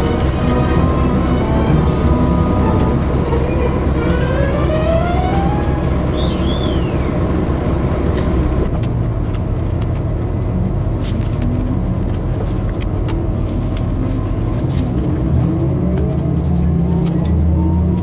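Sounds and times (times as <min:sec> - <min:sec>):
high chirp: 0:00.0 - 0:07.1
rising train tone: 0:00.0 - 0:08.6
train rumble: 0:00.0 - 0:18.0.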